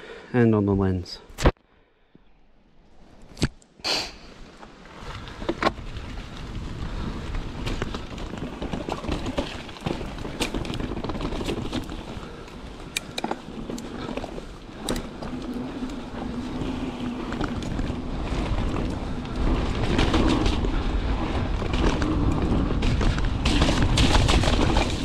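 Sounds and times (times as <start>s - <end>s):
bike clicking and rattling: 4.6s - 25.0s
tyres rolling over dirt and stone: 5.0s - 25.0s
wind rushing over microphone: 5.0s - 25.0s.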